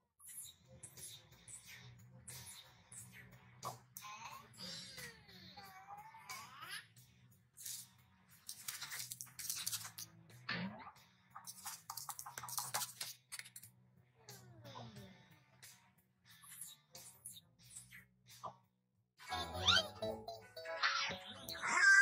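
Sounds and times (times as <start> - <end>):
squeaky cartoon voice effects: 0.2 - 6.9, 16.4 - 18.0, 19.2 - 22.0
background music: 19.2 - 22.0.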